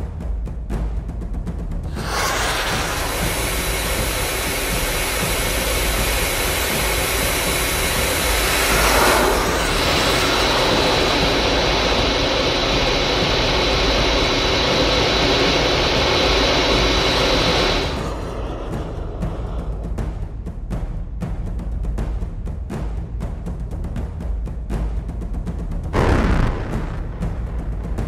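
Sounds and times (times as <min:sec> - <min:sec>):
missile engine roar: 0:01.9 - 0:20.0, 0:26.0 - 0:28.0.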